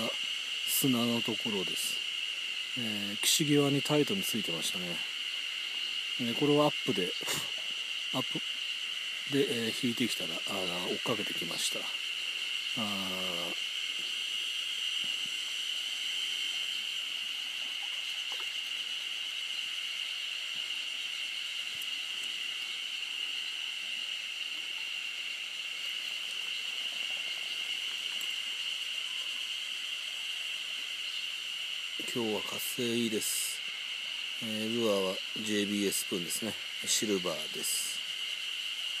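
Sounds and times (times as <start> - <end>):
high-pitched insect chorus: 0.0 - 39.0.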